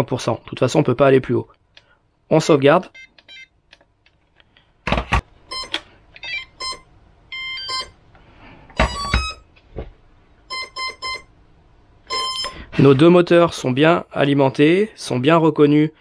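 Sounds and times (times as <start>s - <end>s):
short electronic beeps: 6.6s - 8.0s, 8.8s - 9.4s, 10.5s - 11.3s, 12.1s - 12.6s.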